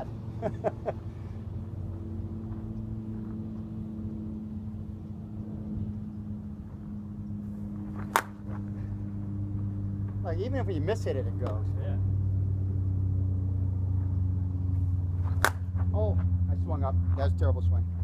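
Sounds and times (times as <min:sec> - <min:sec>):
low engine-like hum: 0:00.0 - 0:18.0
softball bat crack: 0:07.8 - 0:08.8, 0:15.2 - 0:15.9.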